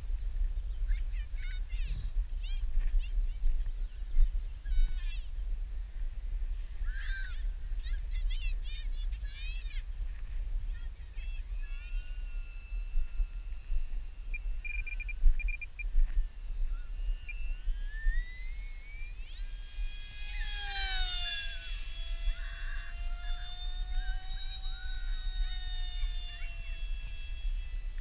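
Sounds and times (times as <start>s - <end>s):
electric model plane motor whining: 6.6s - 28.0s.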